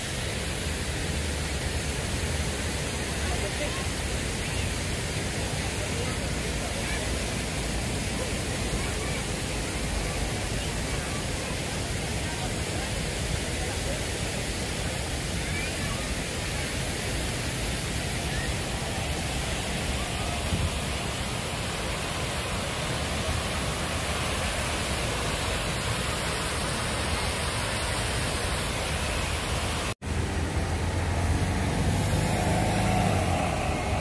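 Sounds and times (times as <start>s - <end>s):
fountain water splashing: 0.0s - 34.0s
street traffic rumble: 16.9s - 34.0s.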